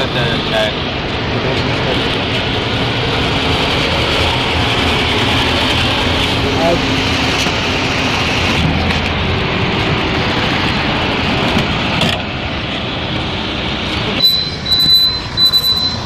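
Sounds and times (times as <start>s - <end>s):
road traffic noise: 0.0s - 16.0s
high-pitched electronic tone: 14.2s - 16.0s.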